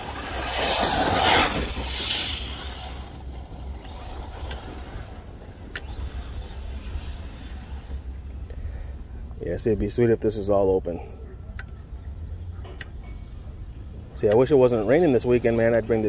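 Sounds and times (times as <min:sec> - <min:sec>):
electric rc car driving: 0:00.0 - 0:08.5.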